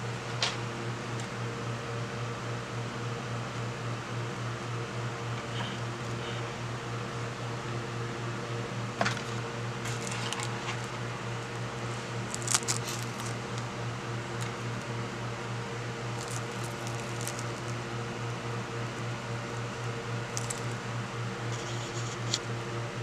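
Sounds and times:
steady low hum: 0.0 - 23.0
plastic wrap crinkling: 12.2 - 13.7, 16.1 - 17.8, 20.3 - 20.8.

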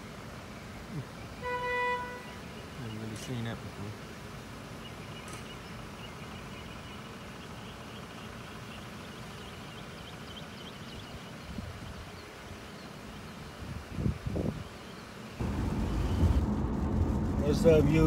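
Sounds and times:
steady low rumble: 15.4 - 18.0.

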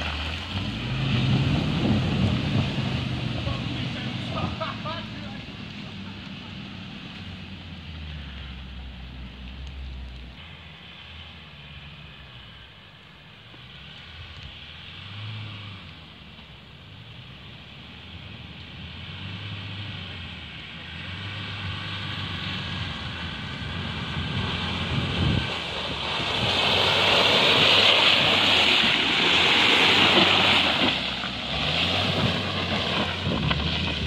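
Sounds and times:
diesel engine driving through mud: 0.0 - 34.0.

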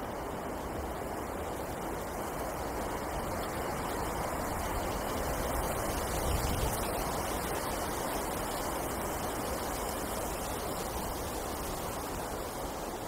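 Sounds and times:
wind blowing through trees: 0.0 - 13.0.

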